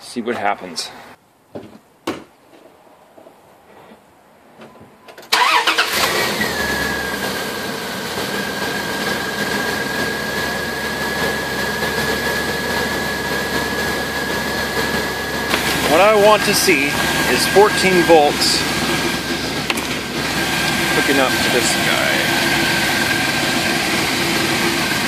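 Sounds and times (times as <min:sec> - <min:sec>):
truck engine starting and idling: 0:05.0 - 0:25.0
high whine: 0:08.8 - 0:25.0.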